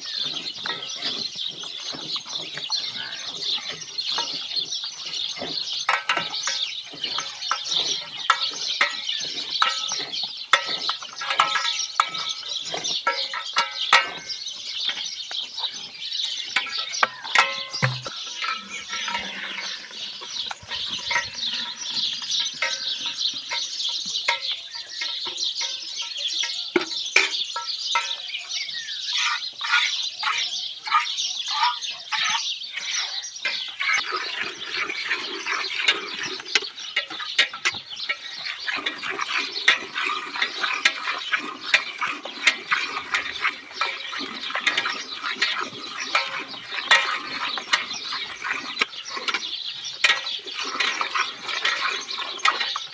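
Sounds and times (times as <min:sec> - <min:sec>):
milk squirting into steel bucket: 0:33.8 - 0:52.9.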